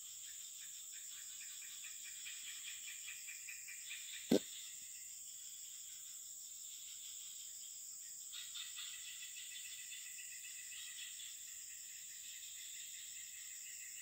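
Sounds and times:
loud pulsing insect call: 0:08.3 - 0:14.0.

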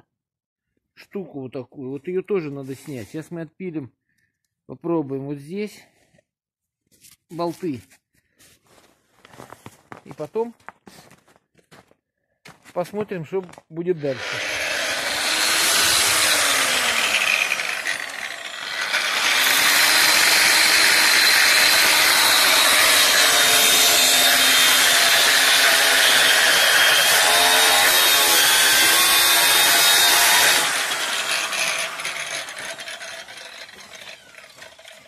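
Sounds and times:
angle grinder cutting metal: 0:14.0 - 0:35.0
grinder spinning down: 0:14.0 - 0:35.0.

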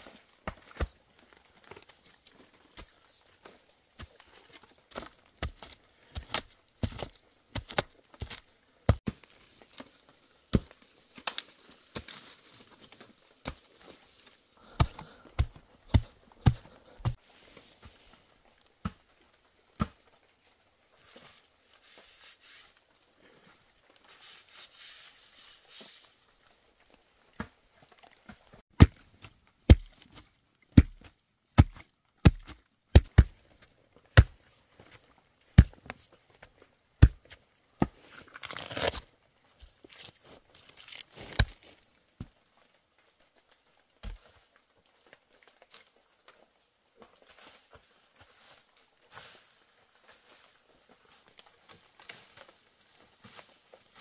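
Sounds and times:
blade chopping strikes: 0:30.8 - 0:31.0
tearing and rustling: 0:38.0 - 0:39.1, 0:39.9 - 0:41.8.

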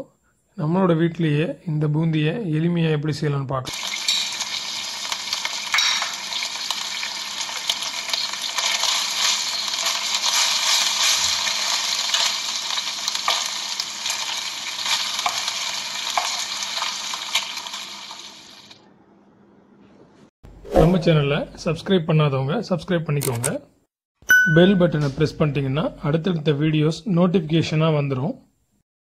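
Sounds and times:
batter frying in hot oil: 0:03.7 - 0:18.8
oil crackling: 0:03.7 - 0:18.8.

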